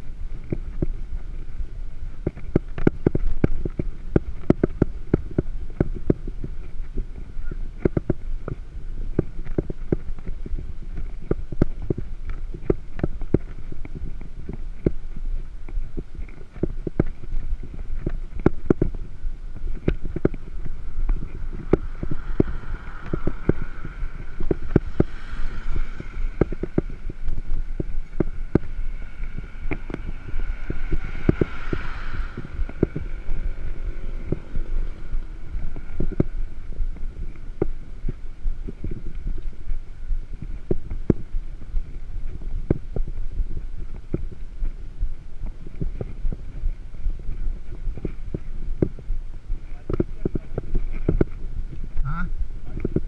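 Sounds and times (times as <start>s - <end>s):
higher hum: 0.0s - 53.0s
wind rumble on microphone: 0.0s - 53.0s.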